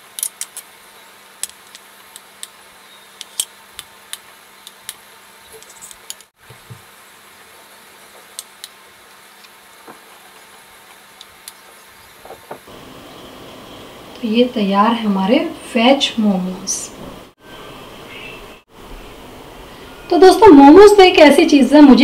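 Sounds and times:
faint hiss: 0:00.0 - 0:22.0.

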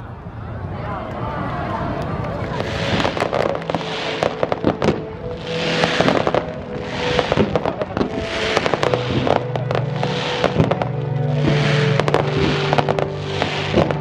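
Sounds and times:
fireworks cracks and bangs: 0:02.0 - 0:14.0
fireworks hissing whooshes: 0:02.4 - 0:14.0.

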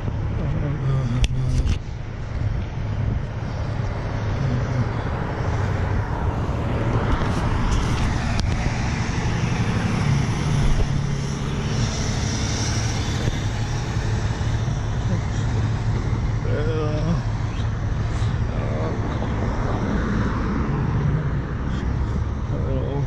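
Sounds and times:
low engine drone: 0:00.0 - 0:23.0
truck passing with tyre rush: 0:02.3 - 0:16.5
car passing: 0:02.9 - 0:23.0.

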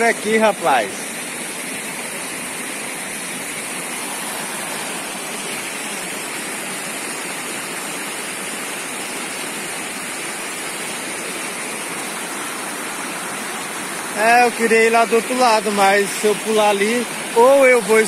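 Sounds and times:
waterfall rushing: 0:00.0 - 0:18.0.

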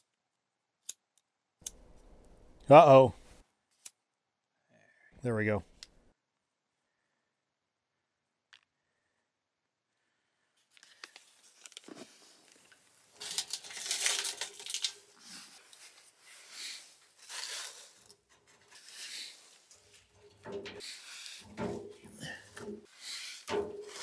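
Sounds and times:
fire-starter packet crackling: 0:10.7 - 0:18.2
firewood scraping and knocking: 0:18.2 - 0:24.0.

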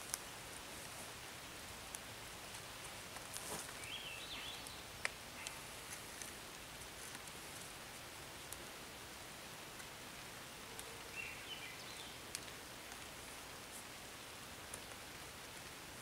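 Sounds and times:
outdoor hiss: 0:00.0 - 0:16.0
cord rustling: 0:02.5 - 0:03.9.

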